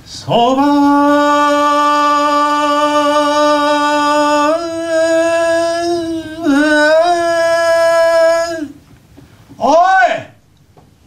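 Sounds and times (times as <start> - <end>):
man singing a long street cry: 0.1 - 8.8.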